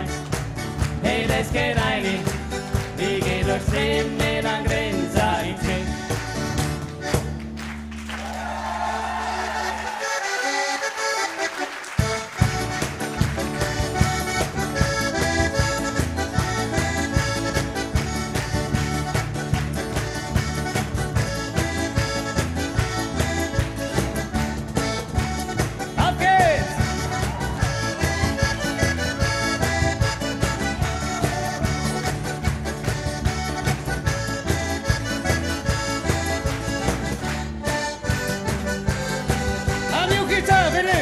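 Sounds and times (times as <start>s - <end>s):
button accordion playing: 0.0s - 7.6s, 9.6s - 41.0s
electric bass: 0.0s - 8.1s, 12.0s - 41.0s
steady beat: 12.0s - 41.0s.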